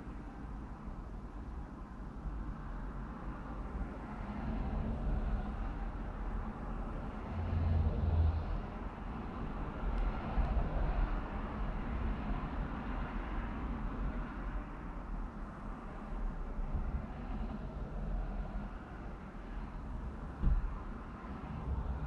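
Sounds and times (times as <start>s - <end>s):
low vehicle rumble: 4.5s - 12.9s, 15.9s - 22.0s.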